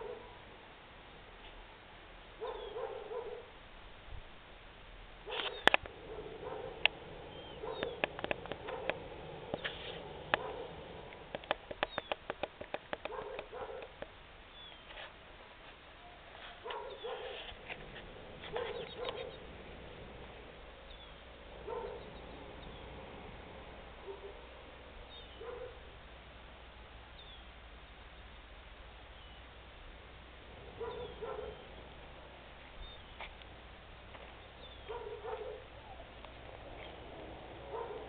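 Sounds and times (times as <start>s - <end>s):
distant low animal calls: 5.3s - 12.4s, 16.0s - 26.0s, 30.4s - 33.2s, 34.4s - 38.0s
sharp clicks: 7.7s - 14.1s.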